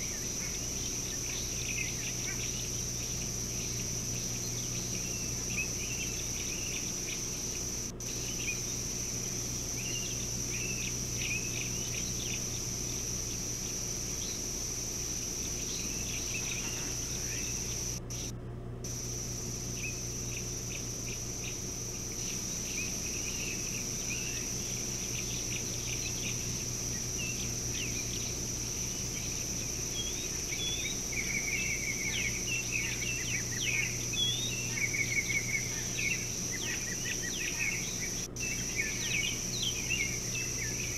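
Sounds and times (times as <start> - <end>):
bird trills: 0.0 - 14.5, 15.4 - 18.3, 29.1 - 40.9
high insect drone: 0.0 - 40.9
low steady hum: 0.0 - 40.9.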